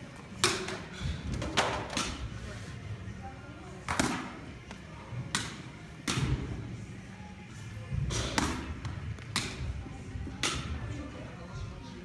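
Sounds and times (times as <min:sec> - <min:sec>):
baseball bat hitting balls: 0:05.2 - 0:06.6, 0:08.0 - 0:10.8.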